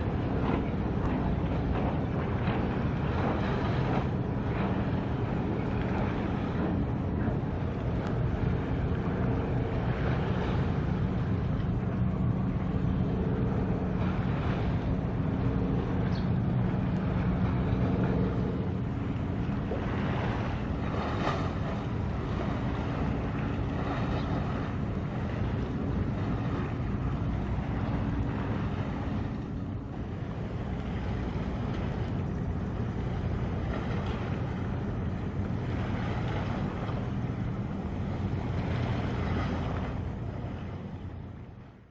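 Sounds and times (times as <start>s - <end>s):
wind noise on microphone: 0.0s - 41.7s
ship engine drone: 0.0s - 41.9s.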